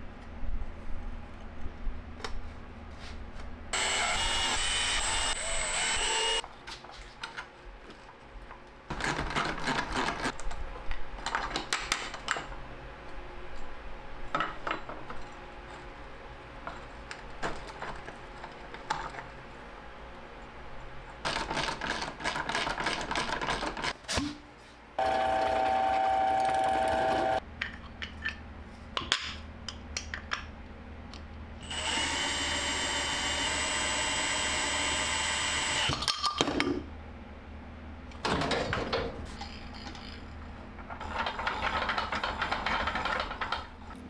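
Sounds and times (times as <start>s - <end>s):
loud whirring: 3.8s - 6.4s, 25.0s - 27.4s, 31.6s - 35.9s.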